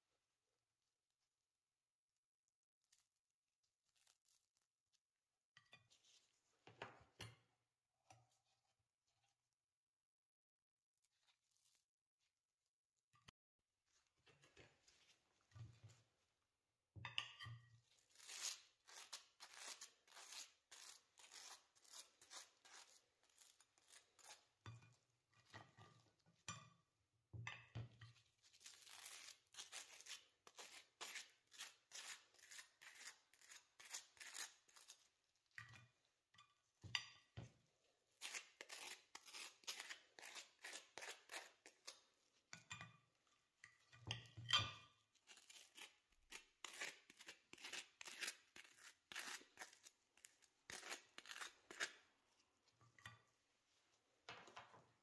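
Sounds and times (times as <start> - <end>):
knife scraping butter on toast: 18.2 - 24.5, 28.6 - 35.1, 38.2 - 42.0, 45.2 - 52.0.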